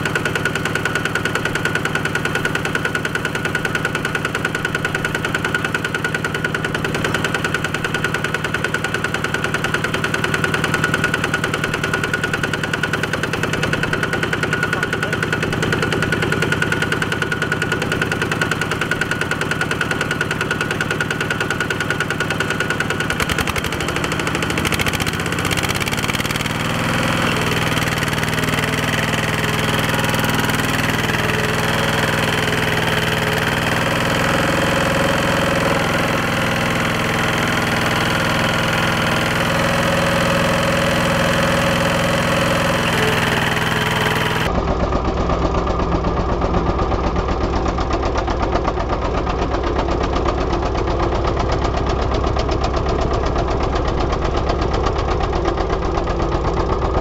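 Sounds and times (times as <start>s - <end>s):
diesel engine running under load: 0.0s - 57.0s.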